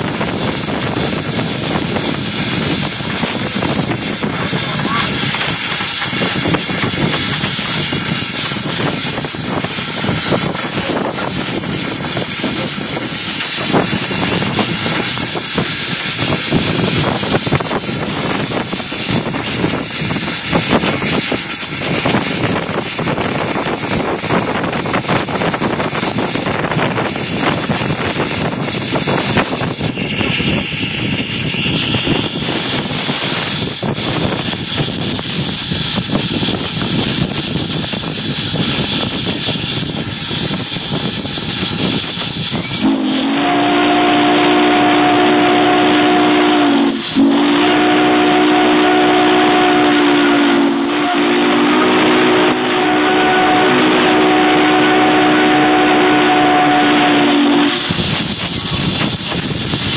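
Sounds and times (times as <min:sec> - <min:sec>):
locomotive running gear: 0:00.0 - 0:42.9, 0:57.7 - 0:59.9
steam exhaust rushing: 0:00.0 - 0:59.9
wind: 0:00.0 - 0:59.9.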